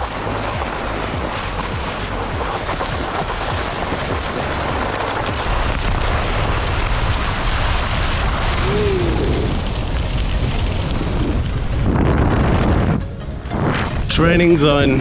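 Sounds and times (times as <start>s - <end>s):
skis hissing on snow: 0.0s - 11.3s
wind buffeting microphone: 0.0s - 15.0s.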